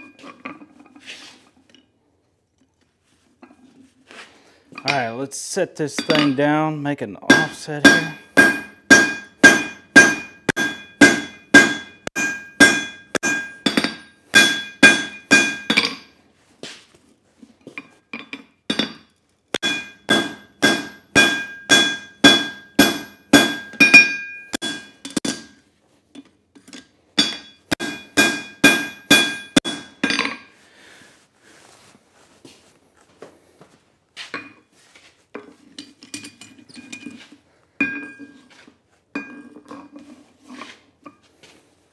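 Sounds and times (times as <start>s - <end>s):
anvil ringing: 6.0s - 6.5s, 7.3s - 16.1s, 19.6s - 25.6s, 27.2s - 30.5s
hammer striking steel on anvil: 6.0s - 6.5s, 7.3s - 16.1s, 19.6s - 25.6s, 27.2s - 30.5s.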